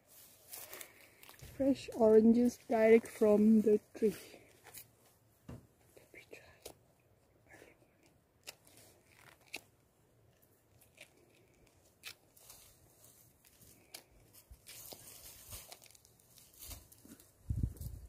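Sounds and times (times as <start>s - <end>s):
peel rustling: 0.0s - 6.8s, 8.0s - 18.0s
orange peel ripping: 8.0s - 17.1s.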